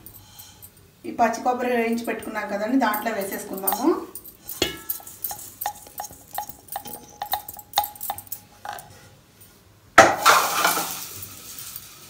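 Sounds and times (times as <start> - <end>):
metal bowl ringing: 1.8 - 8.9
metal clatter: 2.1 - 9.0, 10.2 - 12.0
pan tapping metal bowl: 2.9 - 8.8.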